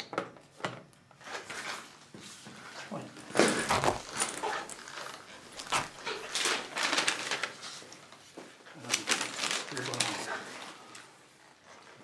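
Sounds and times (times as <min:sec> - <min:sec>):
bag rustling: 0:03.3 - 0:07.4.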